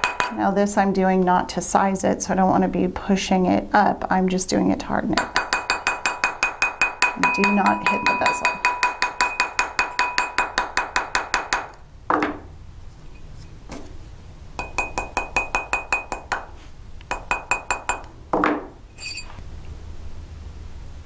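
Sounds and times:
mallet tapping metal ring: 5.2 - 11.8, 14.6 - 16.5, 17.1 - 18.1.

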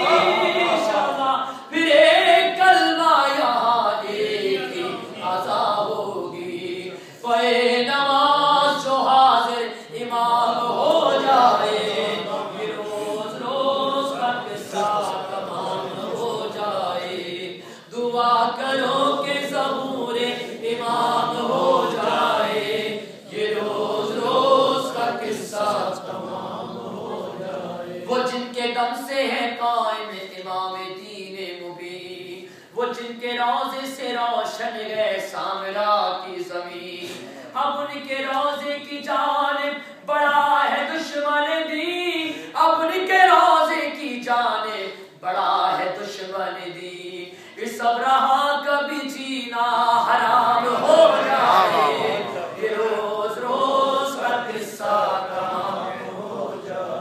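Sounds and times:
voices chanting: 0.0 - 1.5, 4.0 - 7.0, 10.3 - 17.7, 18.5 - 28.2, 50.3 - 57.0
man singing unaccompanied: 0.0 - 15.5, 28.1 - 51.9.

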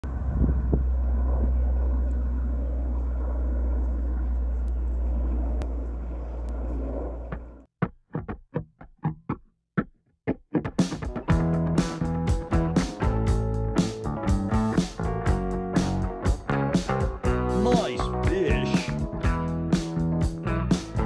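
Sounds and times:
propeller plane engine drone: 0.0 - 7.7
guitar music: 8.1 - 21.0.

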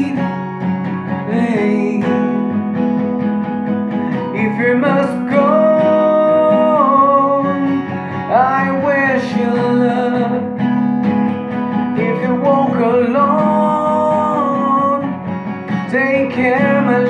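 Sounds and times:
man singing: 0.0 - 0.4, 1.0 - 2.8, 4.1 - 10.7, 11.8 - 17.0
acoustic guitar strumming: 0.0 - 17.0.

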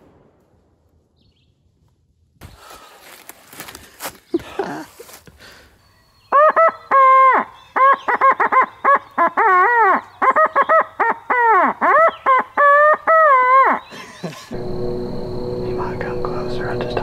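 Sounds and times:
owl hooter call: 6.3 - 13.9.

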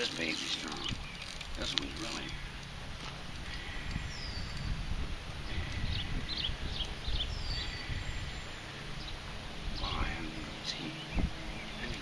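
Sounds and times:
birds chirping: 0.0 - 12.0
low rumble on microphone: 3.1 - 12.0.

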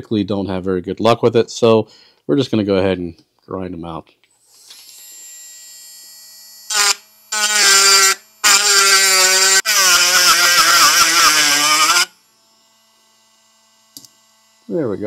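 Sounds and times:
rotary tool grinding metal: 4.4 - 15.0.

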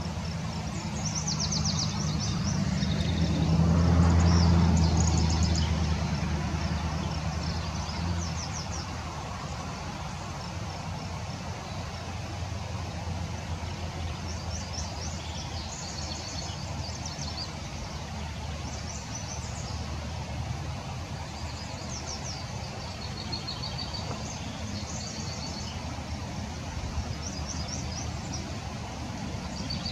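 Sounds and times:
songbirds chirping: 0.0 - 29.9.

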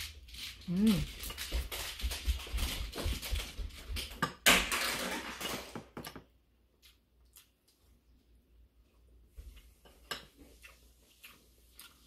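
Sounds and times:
chewing and crunching food: 0.0 - 4.2, 6.6 - 12.0.

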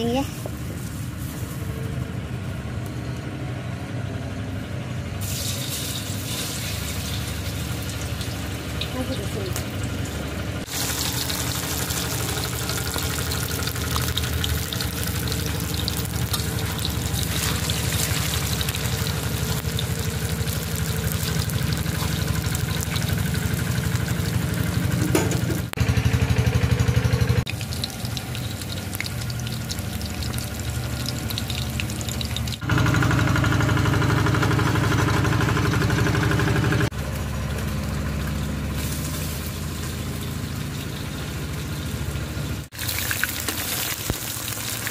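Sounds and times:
fish sizzling in hot oil: 5.2 - 25.0, 27.5 - 32.6, 38.7 - 41.1, 42.7 - 44.9.

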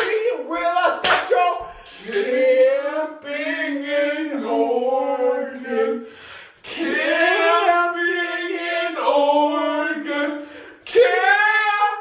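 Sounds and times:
person singing wordlessly: 0.0 - 12.0.

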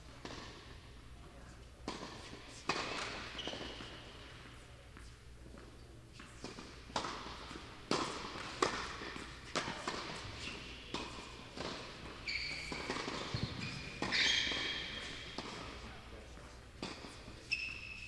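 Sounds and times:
tennis ball struck and bouncing: 1.8 - 4.3, 6.4 - 16.0
shoe squeaks on court: 2.2 - 4.4, 10.1 - 16.0, 16.8 - 18.0.

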